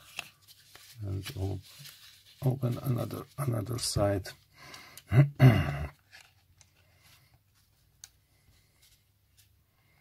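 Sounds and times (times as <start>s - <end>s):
person speaking: 0.7s - 4.5s.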